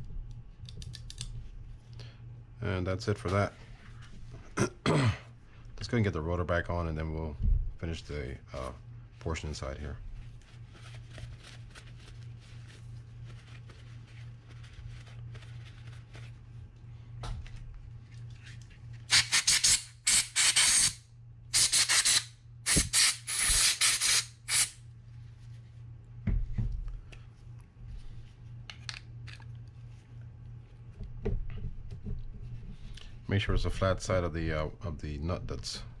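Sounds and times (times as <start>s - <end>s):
steady low hum: 0.0s - 36.0s
aerosol can spraying: 19.1s - 21.0s, 21.6s - 24.8s.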